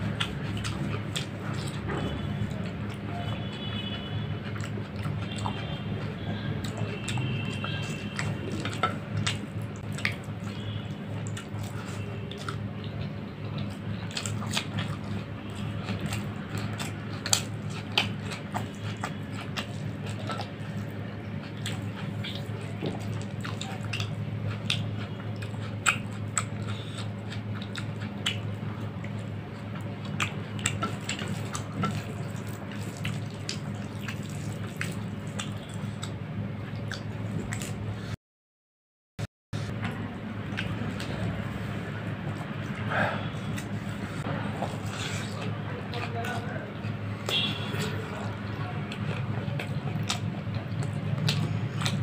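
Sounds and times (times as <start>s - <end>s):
steady low hum: 39.6s - 52.0s.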